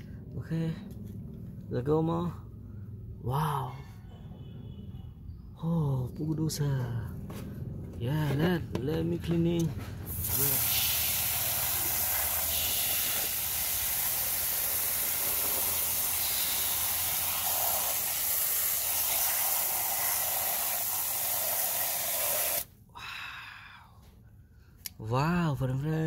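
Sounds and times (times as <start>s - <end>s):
water spray hissing: 10.1s - 22.7s.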